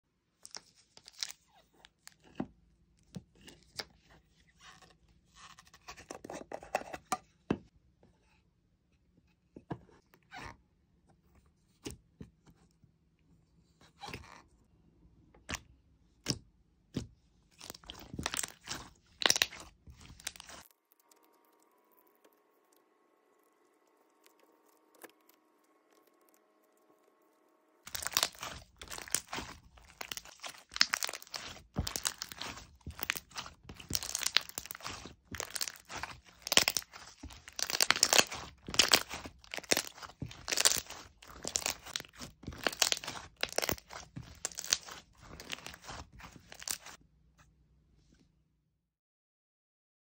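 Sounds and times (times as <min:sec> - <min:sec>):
slime squishing: 0:17.0 - 0:21.6, 0:27.8 - 0:47.0.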